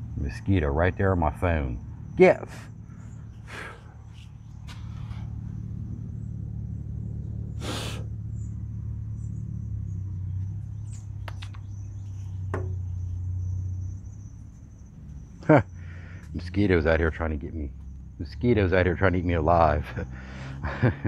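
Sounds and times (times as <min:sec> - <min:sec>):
low mechanical hum: 0:00.0 - 0:21.0
light clicks: 0:10.9 - 0:11.7.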